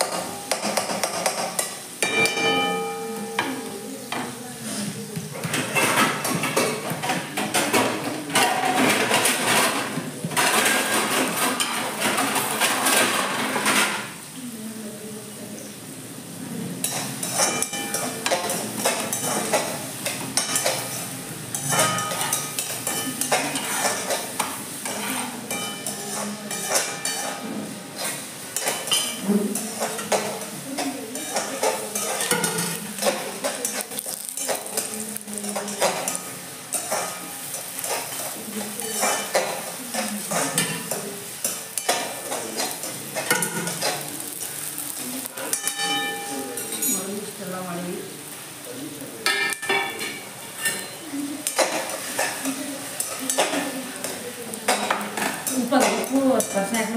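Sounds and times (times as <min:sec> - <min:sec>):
steel utensils clinking: 0:00.0 - 0:04.0, 0:16.8 - 0:27.4, 0:28.0 - 0:47.4, 0:49.2 - 0:56.9
metal spoon scraping a pan: 0:00.0 - 0:14.2, 0:16.8 - 0:47.4, 0:49.2 - 0:56.9
vegetables sizzling: 0:00.0 - 0:56.9.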